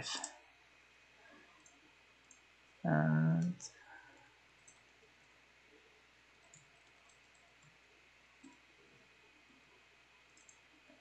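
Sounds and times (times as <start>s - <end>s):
computer keyboard typing clicks: 6.4s - 7.7s, 10.3s - 10.6s.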